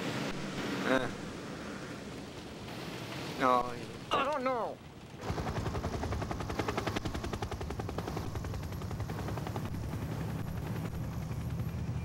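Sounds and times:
helicopter low rumble: 4.8s - 12.0s
helicopter rotor chopping: 5.2s - 12.0s.

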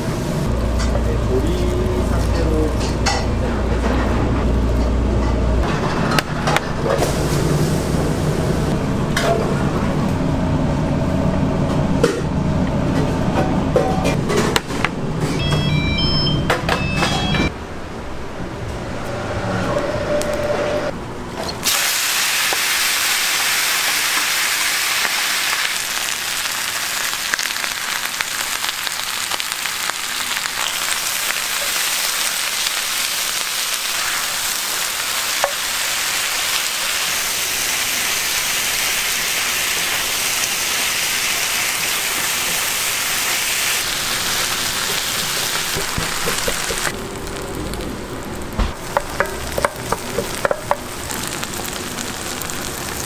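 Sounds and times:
food sizzling on hot plate: 21.6s - 53.0s.

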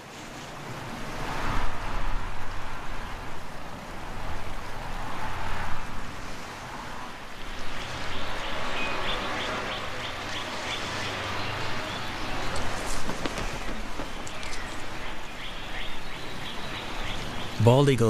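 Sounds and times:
bird chirping: 7.6s - 17.8s.

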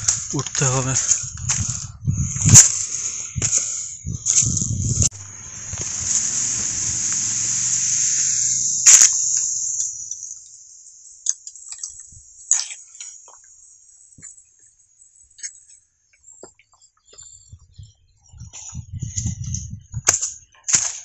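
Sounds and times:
high insect drone: 0.0s - 16.4s
sharp click: 8.8s - 10.5s.

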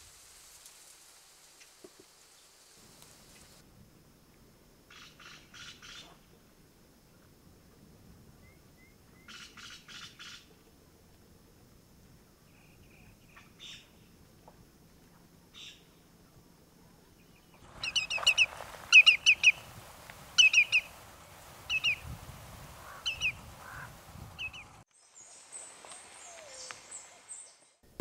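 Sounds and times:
bird whistled calls: 17.8s - 19.7s, 20.4s - 21.0s, 21.7s - 22.1s, 22.8s - 24.7s, 26.2s - 27.6s.

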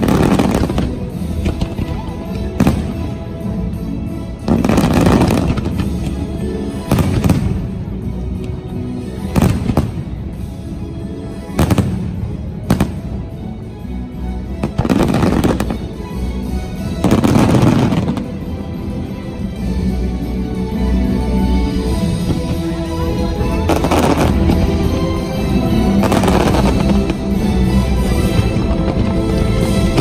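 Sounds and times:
fireworks booming and crackling: 0.0s - 3.7s, 4.4s - 8.6s, 9.2s - 10.5s, 11.4s - 13.4s, 14.6s - 16.1s, 16.7s - 18.6s, 22.1s - 30.0s
music over loudspeakers: 0.0s - 30.0s.

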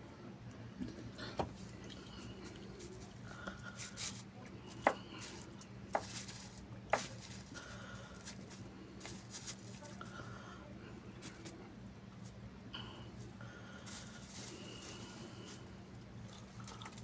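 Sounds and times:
faint rustling: 5.2s - 10.1s, 13.1s - 15.7s.

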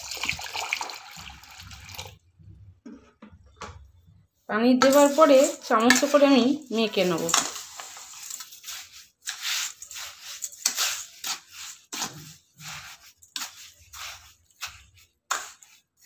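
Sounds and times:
spoon scraping metal bowl: 4.8s - 15.7s.

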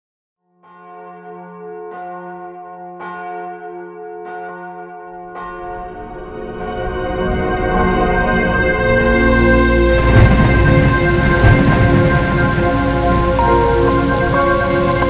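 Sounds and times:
church bell tolling: 0.6s - 15.0s
song music: 6.2s - 15.0s.

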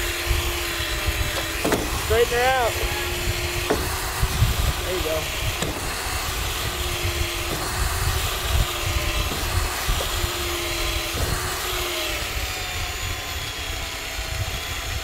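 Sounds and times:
electric winch motor whining: 0.0s - 15.0s.

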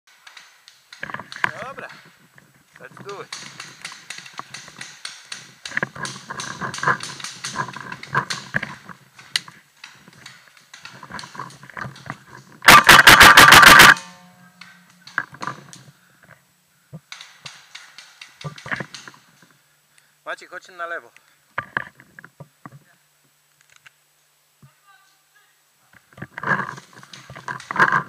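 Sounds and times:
soft rustles and clicks: 0.1s - 12.7s, 13.6s - 19.6s, 21.1s - 25.2s, 25.8s - 28.0s
paintball marker rapid firing: 12.7s - 14.0s.

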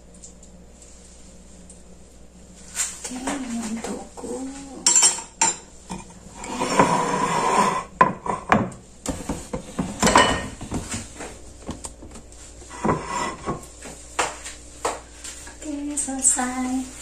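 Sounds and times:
chopsticks and bowl clinking on pot: 4.8s - 6.1s.

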